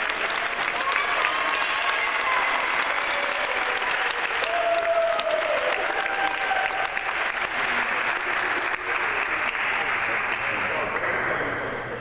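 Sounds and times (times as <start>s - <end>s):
audience clapping: 0.0s - 11.3s.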